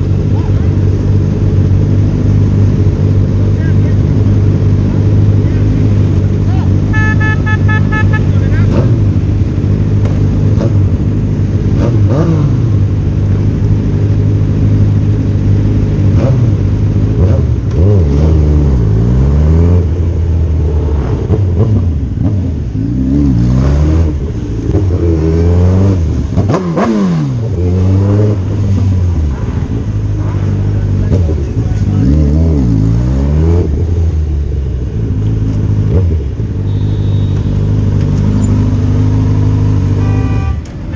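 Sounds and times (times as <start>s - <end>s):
motorcycle engine revving: 0.0s - 40.9s.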